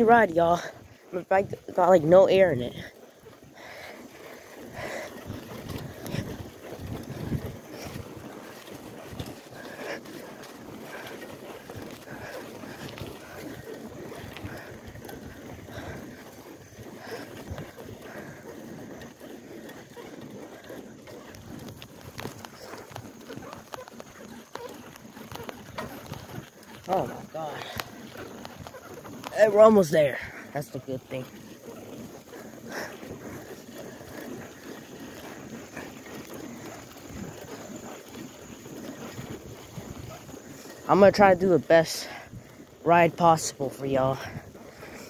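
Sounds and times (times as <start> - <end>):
bicycle wheels rumbling and rattling: 0.0 - 45.0
wind buffeting microphone: 3.5 - 18.4, 32.3 - 45.0
wind on microphone: 4.7 - 8.1.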